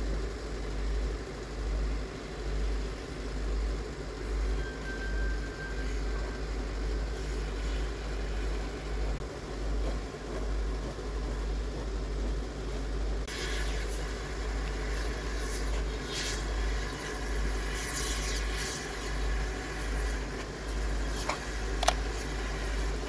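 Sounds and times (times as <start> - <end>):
low rumble: 0.0 - 23.0
steam hissing in bursts: 0.0 - 23.0
sharp click: 21.2 - 22.0.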